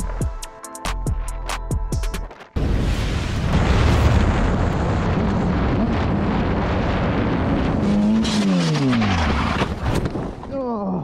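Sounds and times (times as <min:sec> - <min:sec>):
wind rushing over microphone: 0:03.3 - 0:10.5.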